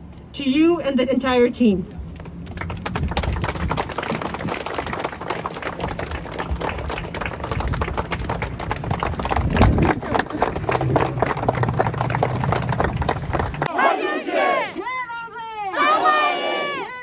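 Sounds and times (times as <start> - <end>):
crowd applauding: 2.2 - 13.7.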